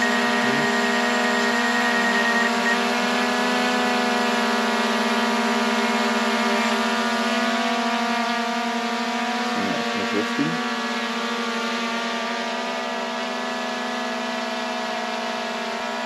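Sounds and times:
drone propellers whining: 0.0 - 7.7, 9.3 - 10.9.

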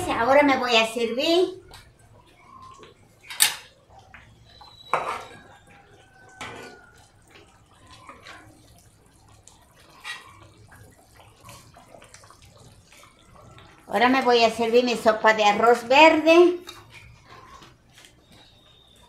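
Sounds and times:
spoon scraping clay pot: 4.6 - 5.5.

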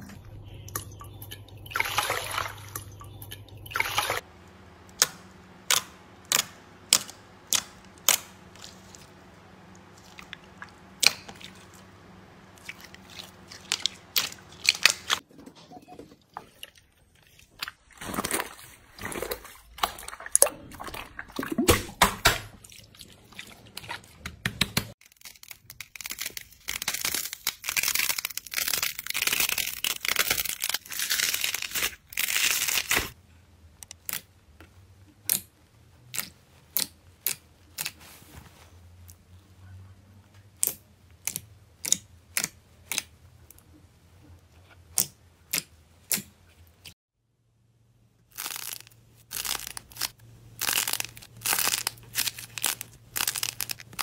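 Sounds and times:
wet slime squelching: 5.0 - 15.2, 16.3 - 24.6
slime crackling: 48.3 - 54.0.

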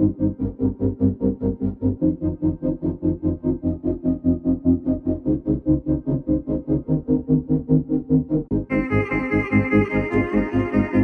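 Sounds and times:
background music quick pulse: 8.7 - 11.0.

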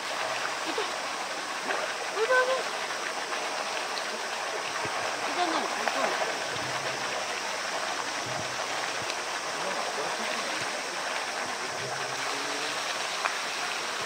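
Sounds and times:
water jet splashing into pool: 0.0 - 14.0.

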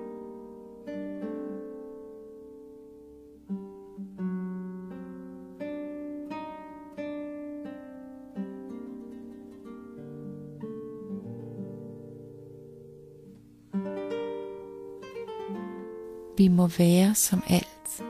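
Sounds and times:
plucked string melody: 0.0 - 18.0.

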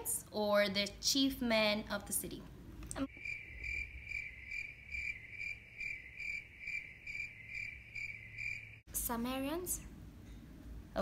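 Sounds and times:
cricket chirping: 3.1 - 8.9.

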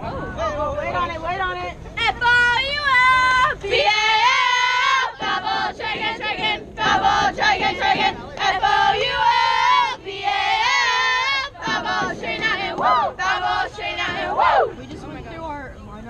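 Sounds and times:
girls chanting a cheer: 2.0 - 14.8.

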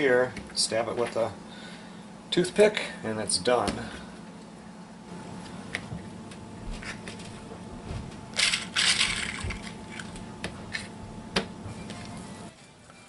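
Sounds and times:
toothpicks rattling in a box: 8.4 - 9.7.

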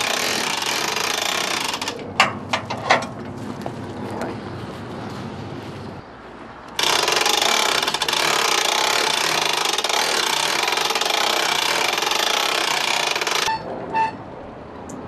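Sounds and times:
handheld power tool running: 0.0 - 2.0, 6.8 - 13.5.

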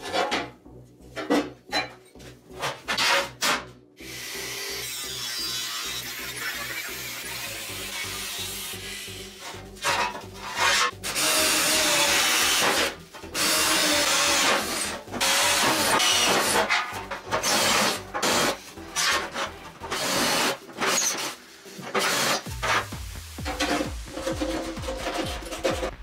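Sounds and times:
power drill boring through steel: 11.0 - 16.4
background music with beat: 21.5 - 26.0.

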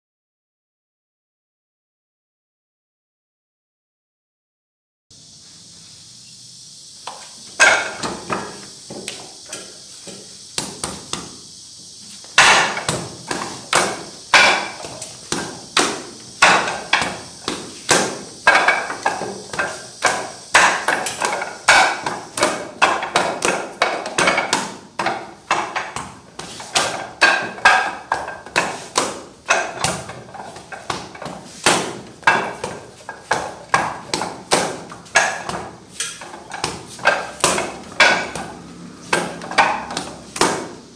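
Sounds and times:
wooden dummy knocks: 12.4 - 40.8.

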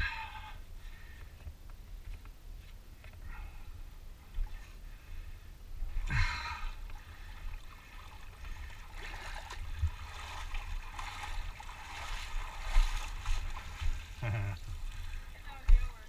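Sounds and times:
water swishing: 4.0 - 16.0
water sloshing and splashing: 4.2 - 16.0.

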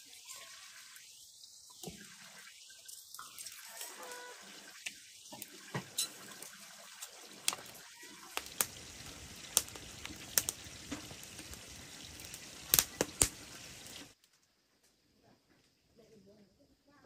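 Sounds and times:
firewood crackling and popping: 4.1 - 14.5.

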